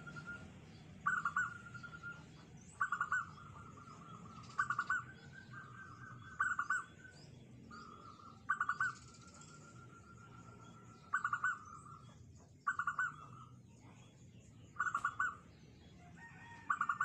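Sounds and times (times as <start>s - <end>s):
dove cooing: 0.0s - 7.1s, 7.8s - 12.0s, 14.8s - 15.4s, 16.7s - 17.0s.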